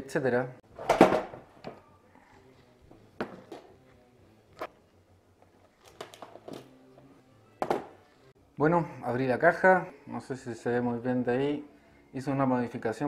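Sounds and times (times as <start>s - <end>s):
plastic boxes knocking on table: 0.8s - 1.4s, 3.2s - 3.7s, 7.6s - 8.0s.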